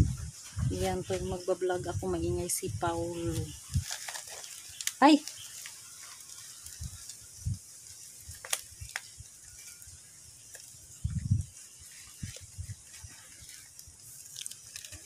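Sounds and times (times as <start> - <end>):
soil and fibre rustling: 0.0 - 15.0
sharp crackles: 3.2 - 15.0.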